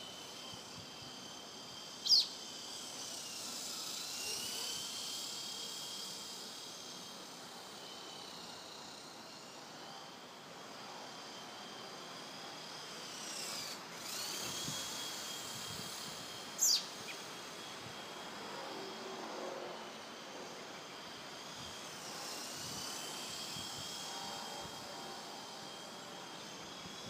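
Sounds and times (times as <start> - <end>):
rc helicopter whine: 0.0 - 27.0.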